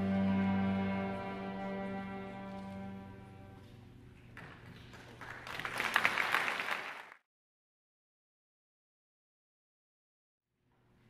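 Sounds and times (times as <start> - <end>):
string orchestra chord: 0.0 - 3.6
audience clapping: 4.4 - 7.2.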